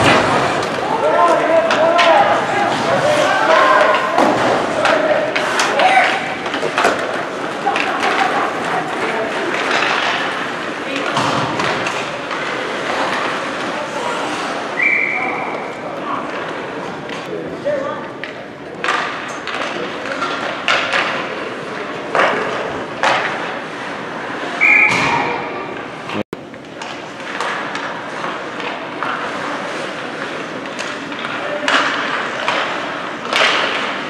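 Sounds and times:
hockey sticks and puck knocking: 0:00.0 - 0:13.8, 0:18.2 - 0:23.5, 0:30.0 - 0:34.0
whistle blast: 0:14.8 - 0:15.4, 0:24.6 - 0:25.3.

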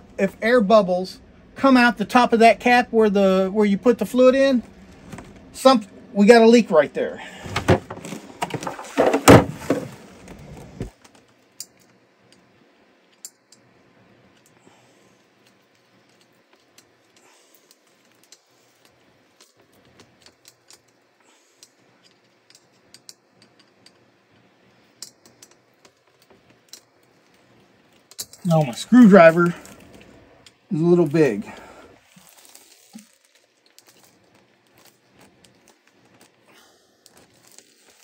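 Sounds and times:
handling rustle: 0:07.2 - 0:11.9, 0:14.4 - 0:38.0.

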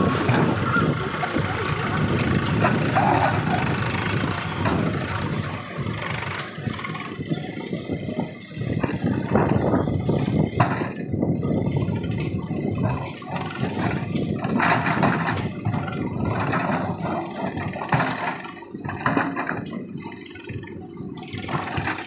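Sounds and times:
diesel engine running under load: 0:00.0 - 0:22.0.

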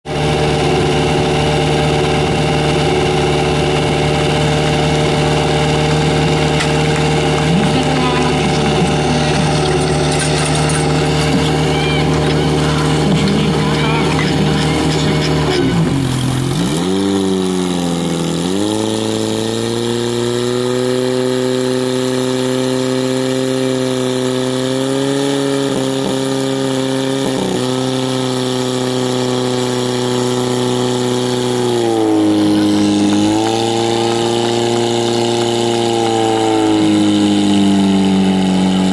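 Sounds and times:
pump engine running hard: 0:00.1 - 0:38.9.

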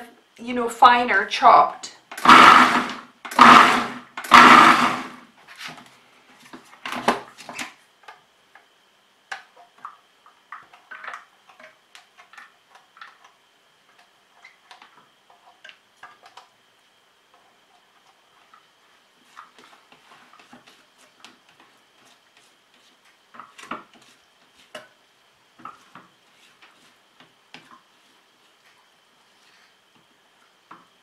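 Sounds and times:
food processor chopping: 0:02.2 - 0:05.2.

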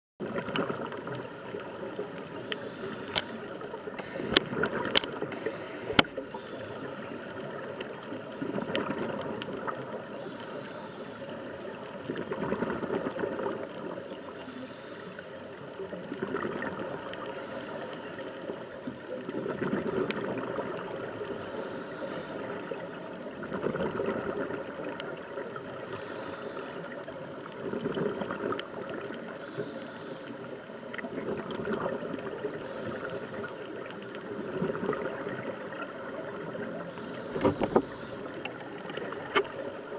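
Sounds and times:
diver breathing through regulator: 0:02.2 - 0:04.6, 0:05.2 - 0:07.6, 0:10.1 - 0:11.7, 0:14.3 - 0:15.4, 0:17.2 - 0:18.9, 0:21.2 - 0:22.8, 0:25.7 - 0:27.6, 0:29.2 - 0:30.6, 0:32.4 - 0:35.0, 0:36.8 - 0:39.4.

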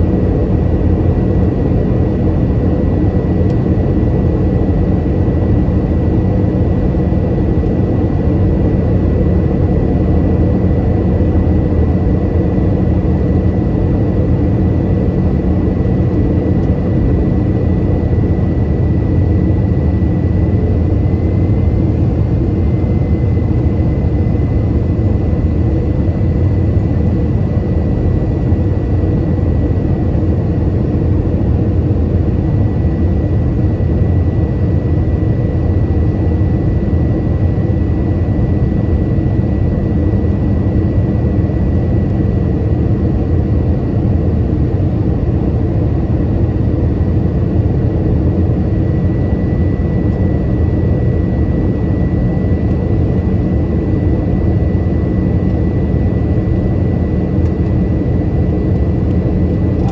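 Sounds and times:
jet engine drone: 0:00.0 - 0:59.9
thin steady whine: 0:47.3 - 0:59.9.

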